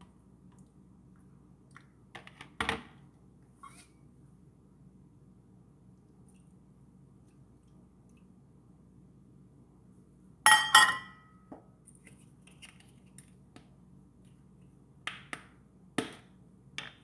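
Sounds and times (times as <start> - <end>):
toy cookware clinking: 10.5 - 11.2.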